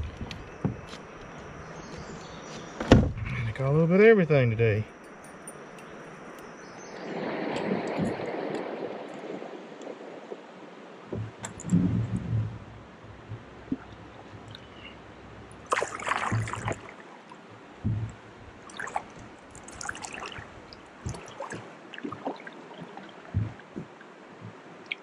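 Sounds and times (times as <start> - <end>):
low thumps from boat: 0.0 - 3.6, 11.1 - 16.9, 17.8 - 24.7
water dripping: 4.9 - 9.9, 11.1 - 25.0
paddle splashing into water: 6.9 - 17.2, 17.8 - 25.0.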